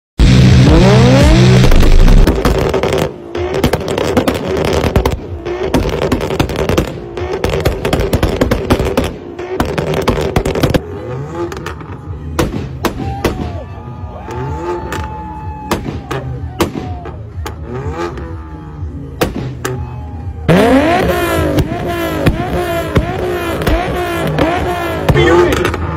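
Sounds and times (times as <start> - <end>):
exhaust pops and bangs: 0.2 - 10.8, 19.2 - 19.9, 20.6 - 25.9
car engine revving: 0.2 - 25.9.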